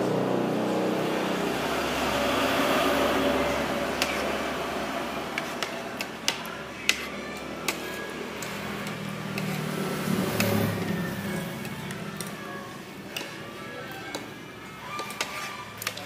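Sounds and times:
vehicle passing: 0:00.0 - 0:16.0.

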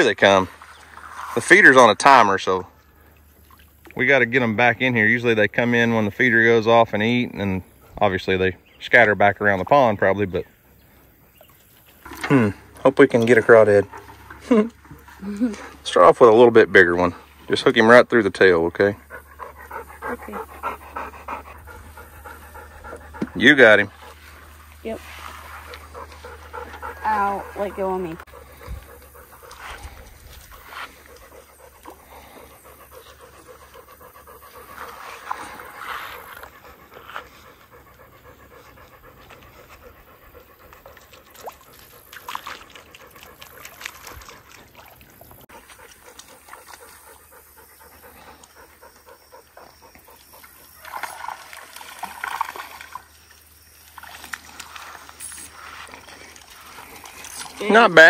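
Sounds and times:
dog panting: 0:16.5 - 0:44.8, 0:45.4 - 0:50.8.

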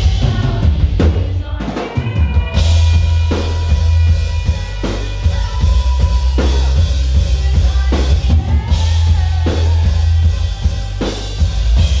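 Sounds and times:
drum kit accents: 0:00.0 - 0:12.0
heavy bass: 0:00.0 - 0:12.0
live pop-rock band playing: 0:00.0 - 0:12.0.

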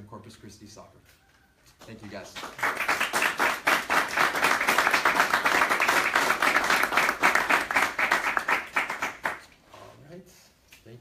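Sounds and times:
people applauding: 0:02.0 - 0:09.5.

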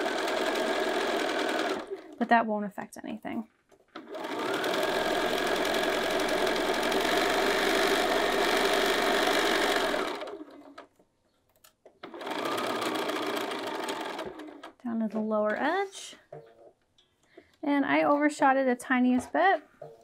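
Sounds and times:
sewing machine stitching: 0:00.0 - 0:02.2, 0:03.9 - 0:10.9, 0:12.0 - 0:14.8.

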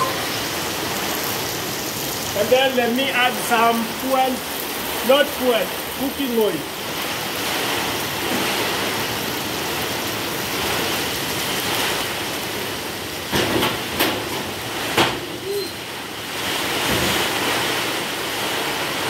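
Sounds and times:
heavy rain hiss: 0:00.0 - 0:19.0
sharp knocks and clatters: 0:13.3 - 0:15.4.

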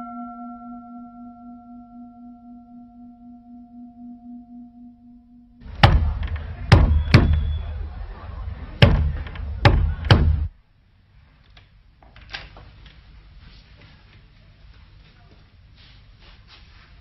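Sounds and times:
held musical tone: 0:00.0 - 0:10.5
knocking on heavy wooden door: 0:05.7 - 0:07.6, 0:08.8 - 0:10.5.

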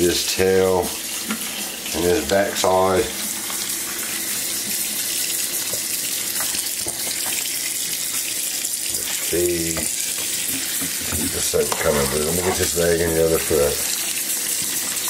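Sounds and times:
water running into a metal sink: 0:00.0 - 0:15.0.

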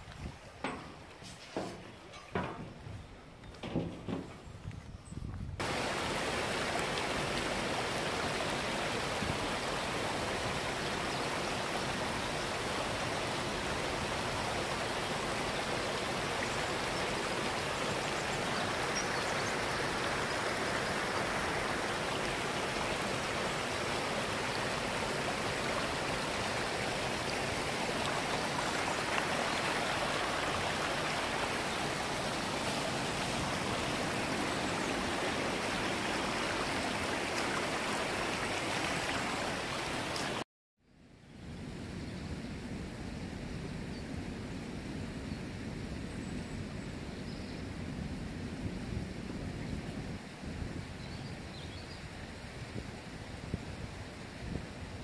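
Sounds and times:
river water rushing: 0:05.6 - 0:40.4.

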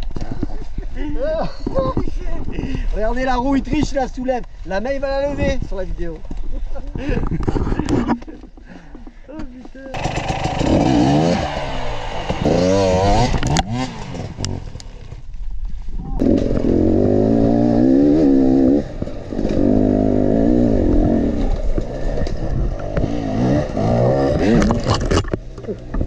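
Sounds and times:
dirt bike engine revving: 0:09.9 - 0:14.9, 0:16.2 - 0:25.3.

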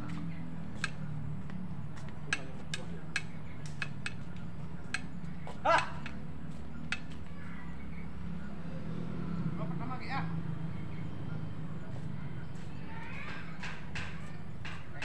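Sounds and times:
rackets hitting shuttlecock: 0:02.3 - 0:04.2.

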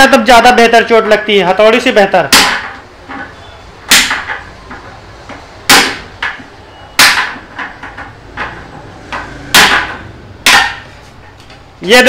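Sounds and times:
pliers hammering metal rod: 0:03.9 - 0:04.4, 0:09.2 - 0:10.9.

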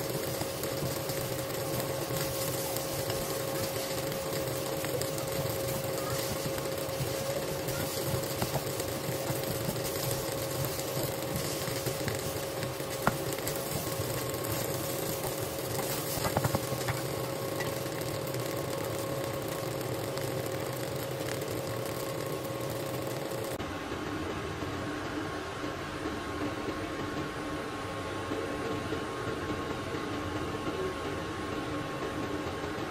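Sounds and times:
rice sizzling in a hot pan: 0:00.0 - 0:23.6
spatula stirring food: 0:00.0 - 0:23.6
steady hum: 0:00.0 - 0:32.9.

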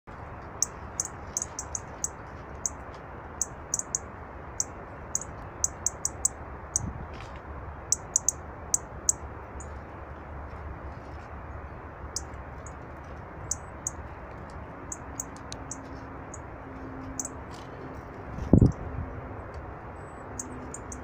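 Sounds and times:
songbird ticking calls: 0:00.5 - 0:02.8, 0:03.4 - 0:06.9, 0:07.9 - 0:09.8, 0:12.1 - 0:12.8, 0:13.4 - 0:16.5, 0:17.1 - 0:17.4, 0:20.3 - 0:21.0.

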